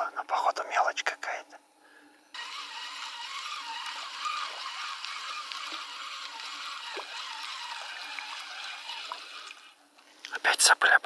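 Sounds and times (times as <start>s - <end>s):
bubbling hiss of river water: 2.5s - 9.8s
faint small splashes: 3.1s - 10.4s.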